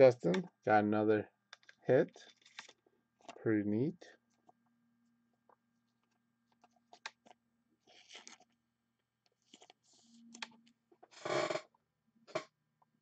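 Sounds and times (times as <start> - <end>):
plastic sleeve crinkle: 1.6 - 3.4, 6.0 - 8.6, 9.3 - 10.4.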